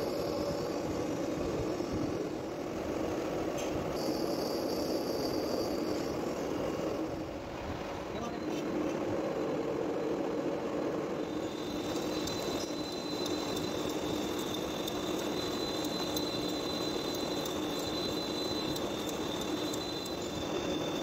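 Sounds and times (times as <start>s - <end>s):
high cutting whine: 11.0s - 21.0s
lathe machine hum: 11.0s - 21.0s.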